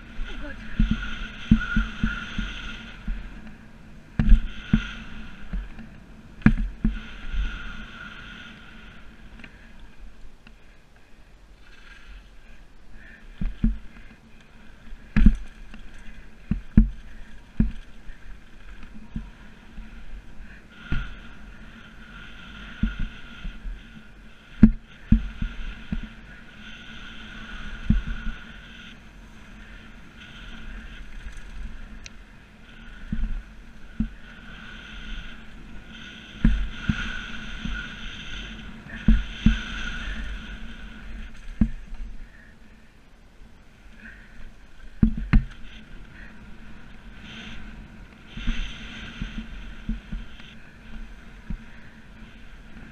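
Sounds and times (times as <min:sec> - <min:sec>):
bike thuds and rattles over bumps: 0:00.0 - 0:07.5, 0:14.9 - 0:21.7, 0:24.6 - 0:26.4, 0:38.9 - 0:40.2, 0:45.0 - 0:45.6
bike tyres on dirt trail: 0:00.0 - 0:52.9.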